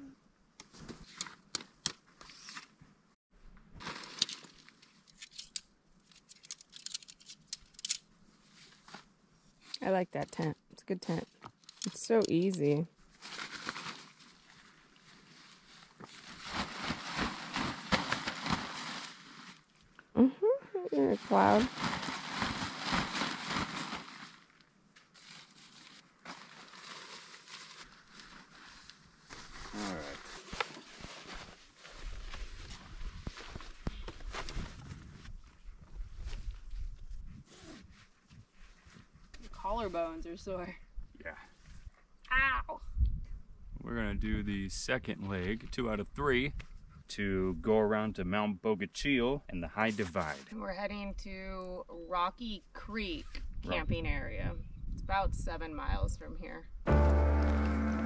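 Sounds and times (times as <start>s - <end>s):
tent poles clicking: 0.6s - 2.7s, 3.8s - 8.1s, 11.4s - 12.6s
nylon tent fabric rustling: 3.8s - 5.1s, 13.1s - 19.8s, 21.0s - 40.2s.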